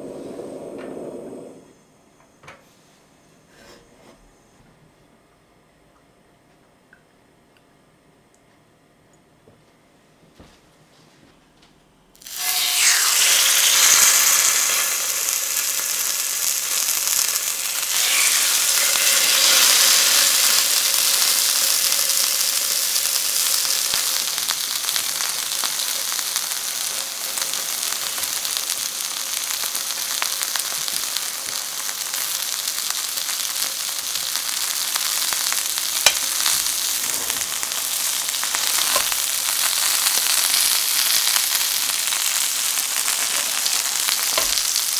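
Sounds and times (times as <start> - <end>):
chicken sizzling in frying pan: 12.2 - 44.9.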